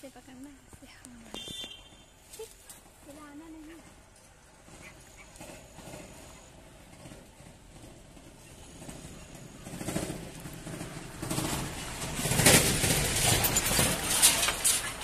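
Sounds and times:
dry leaves rustling and crackling: 2.1s - 4.7s, 9.7s - 15.0s.

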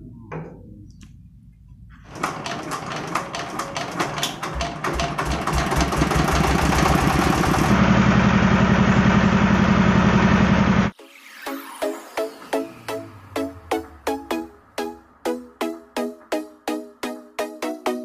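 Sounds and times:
engine droning: 6.5s - 11.0s.

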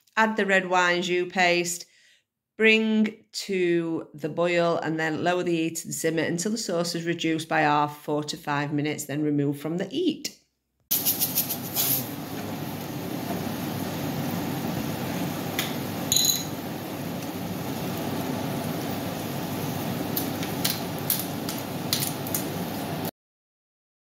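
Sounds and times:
food sizzling in a pan: 10.9s - 23.1s.

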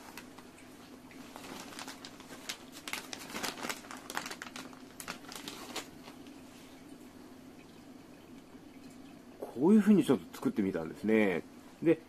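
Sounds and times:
plastic crinkling with clicks: 0.0s - 6.4s.

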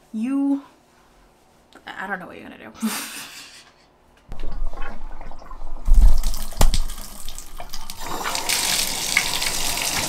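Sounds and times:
faucet low thumps: 4.3s - 8.4s
water running into tub: 4.3s - 10.0s.

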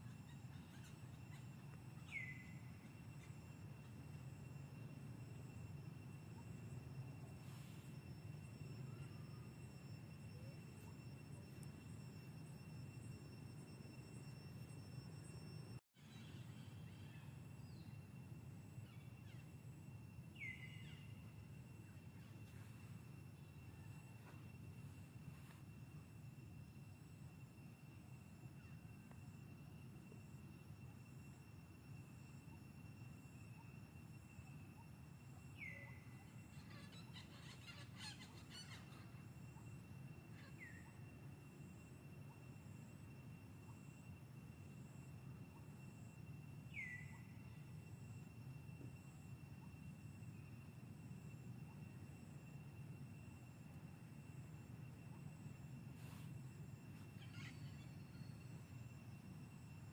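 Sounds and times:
faint birdsong: 0.0s - 12.3s, 16.0s - 25.6s, 34.8s - 41.2s, 46.6s - 47.8s, 56.0s - 59.0s
bird chirps: 0.1s - 3.3s.

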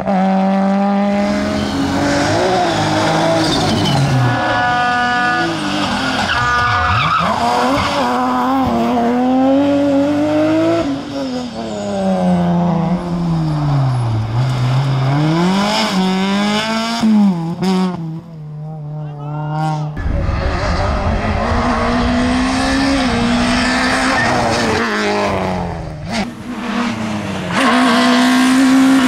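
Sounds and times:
rally car engines revving: 0.0s - 29.0s
high squeal: 20.0s - 25.3s.

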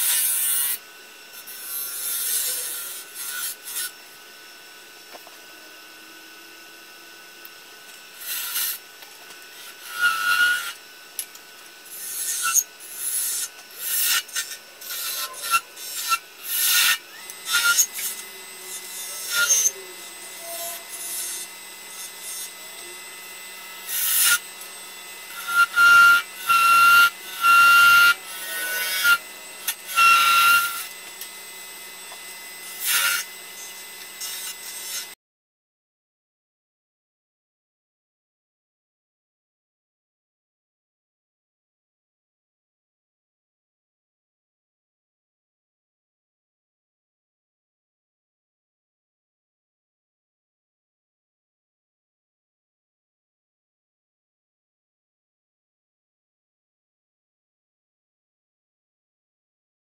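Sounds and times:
turning tool scraping wood: 0.0s - 4.0s, 8.2s - 10.8s, 11.9s - 22.9s, 23.8s - 24.7s, 25.3s - 31.3s, 32.1s - 35.2s
wood lathe humming: 0.0s - 35.2s.

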